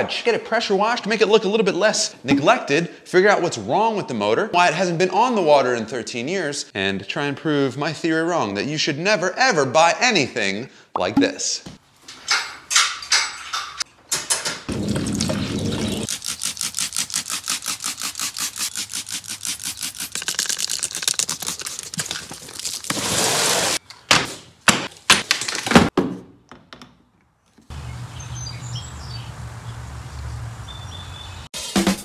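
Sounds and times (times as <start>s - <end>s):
spray bottle squirts: 15.9s - 23.8s.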